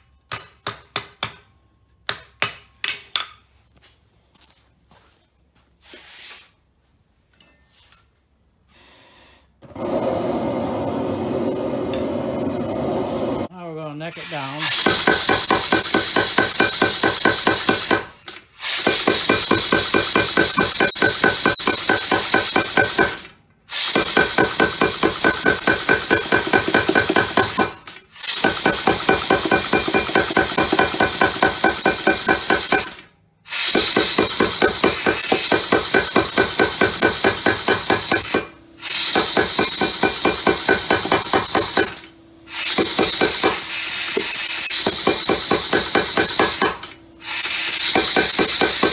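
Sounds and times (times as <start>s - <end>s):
power hammer striking hot metal: 14.6s - 18.1s, 18.8s - 23.3s, 23.9s - 33.0s, 33.7s - 42.1s, 42.7s - 46.9s, 47.6s - 48.9s.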